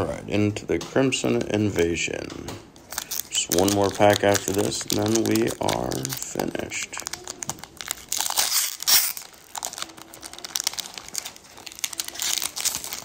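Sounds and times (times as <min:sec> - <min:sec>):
foil wrapper crinkling and tearing: 0:02.8 - 0:13.0.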